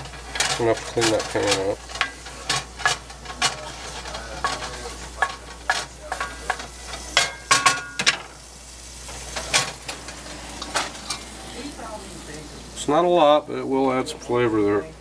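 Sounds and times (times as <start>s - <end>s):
wooden spatula scraping skillet: 0.0s - 8.3s, 8.9s - 12.6s
low sizzle of wine: 0.0s - 15.0s.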